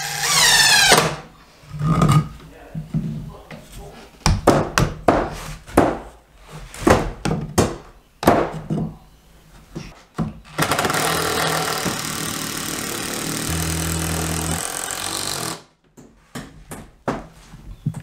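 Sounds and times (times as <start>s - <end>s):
cordless drill driving screw: 0.0s - 1.2s, 10.5s - 15.7s.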